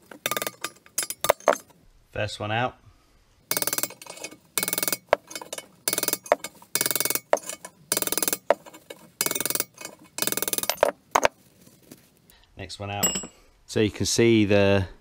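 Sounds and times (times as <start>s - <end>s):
hammer striking metal punch: 13.0s - 13.4s
light metal clinks: 13.0s - 13.4s.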